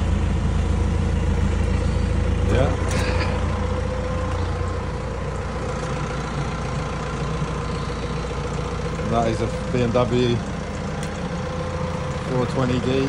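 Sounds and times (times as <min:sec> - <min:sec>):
machine engine droning: 0:00.0 - 0:13.0.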